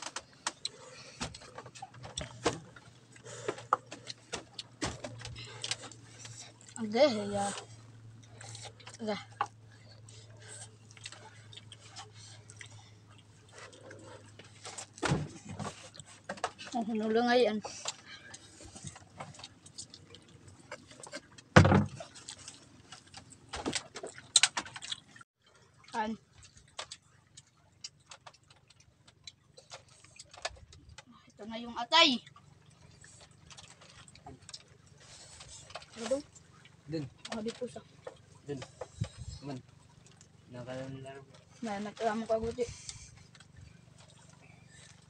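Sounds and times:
lip smacks and chewing: 0:07.8 - 0:15.0, 0:17.8 - 0:25.2, 0:25.8 - 0:31.0, 0:32.2 - 0:36.9, 0:37.9 - 0:40.4.

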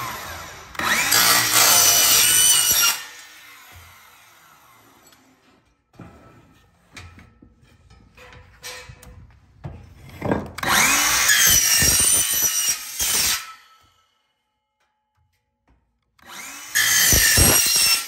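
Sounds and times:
saw blade winding down: 0:00.0 - 0:05.0, 0:16.2 - 0:18.0
miter saw cutting metal: 0:00.0 - 0:05.2, 0:10.6 - 0:13.8, 0:16.2 - 0:18.0
metal railing knocks and clanks: 0:06.9 - 0:10.6.

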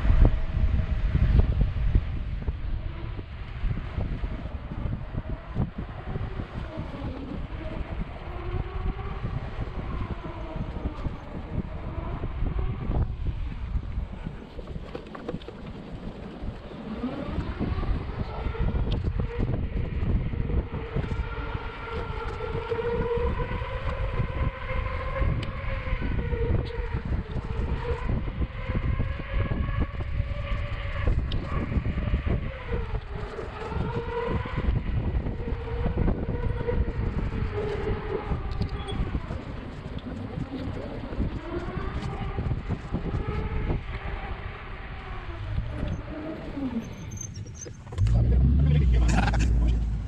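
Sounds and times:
wind rumble on microphone: 0:00.0 - 0:50.0.

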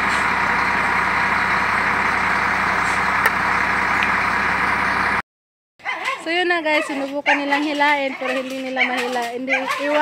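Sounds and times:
heavy diesel engine running: 0:00.0 - 0:05.2.

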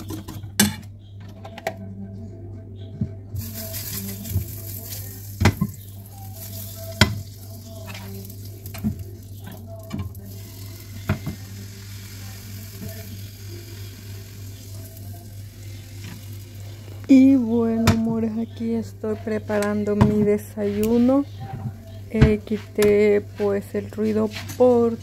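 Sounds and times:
batter sizzling in a frying pan: 0:03.4 - 0:17.2.

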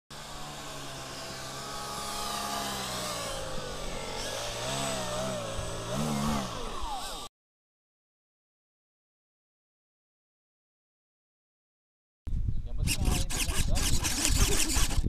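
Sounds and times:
model plane motor buzzing: 0:00.1 - 0:07.3, 0:12.8 - 0:15.0.

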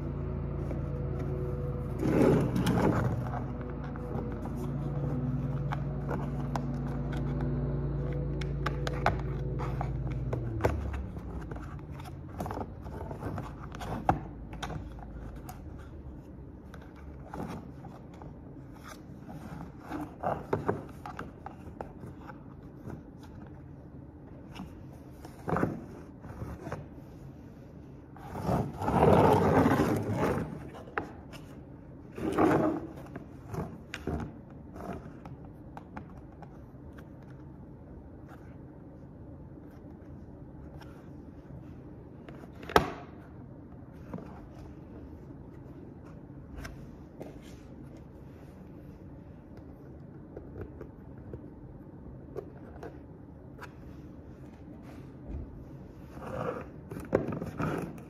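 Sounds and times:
plastic scraping: 0:00.6 - 0:23.5.

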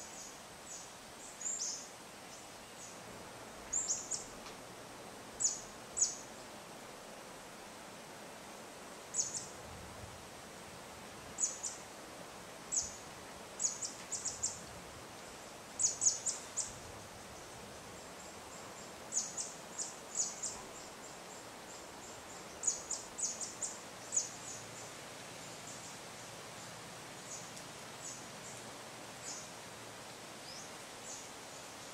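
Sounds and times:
light wind: 0:00.0 - 0:31.9.

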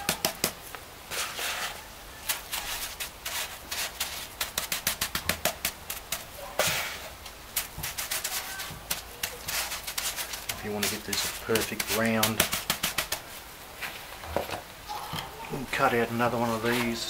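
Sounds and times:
hand patting wet concrete: 0:00.0 - 0:13.4
rubbing scrapes: 0:01.1 - 0:14.2.

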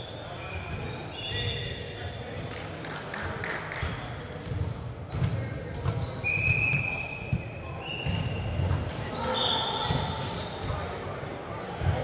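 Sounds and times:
sneakers squeaking on floor: 0:00.0 - 0:02.0, 0:04.4 - 0:11.1
faint players' voices: 0:00.0 - 0:12.0.

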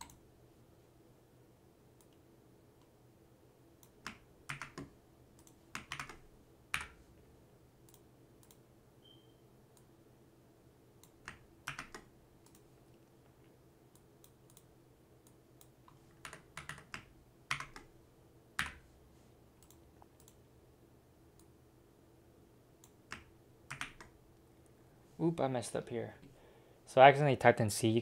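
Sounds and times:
faint steady hum: 0:00.0 - 0:28.0
keyboard keys clicking: 0:03.8 - 0:07.0, 0:11.0 - 0:12.6, 0:15.6 - 0:17.9, 0:23.1 - 0:24.1
mouse clicks: 0:07.9 - 0:09.2.

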